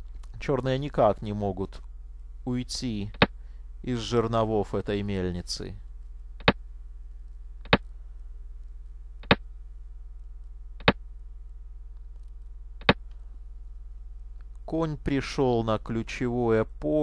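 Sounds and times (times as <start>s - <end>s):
low electrical hum: 0.0s - 17.0s
sharp computer clicks: 3.1s - 3.4s, 6.4s - 6.6s, 7.6s - 7.8s, 9.2s - 9.4s, 10.8s - 11.0s, 12.8s - 13.0s.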